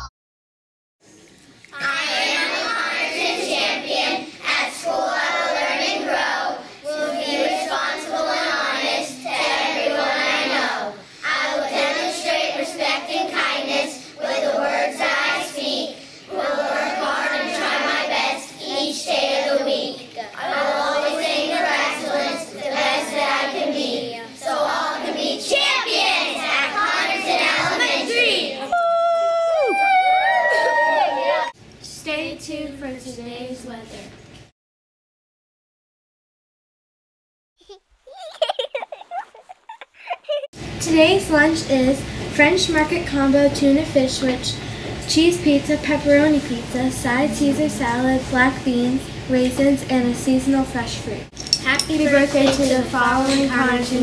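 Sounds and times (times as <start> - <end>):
young children singing together: 1.7 - 28.7.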